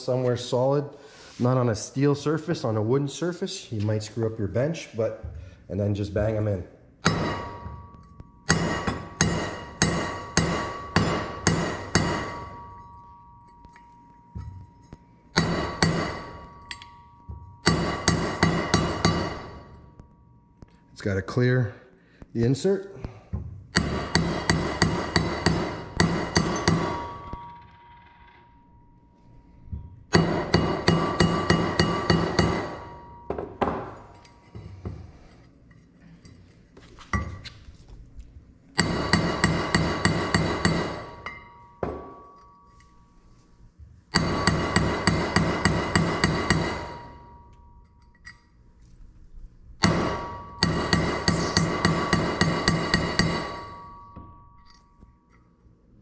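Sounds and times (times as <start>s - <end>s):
metal ringing: 7.0s - 21.6s, 23.8s - 34.8s, 38.8s - 43.5s, 44.1s - 48.8s, 49.8s - 55.6s
hammer blows on metal: 49.8s - 54.8s.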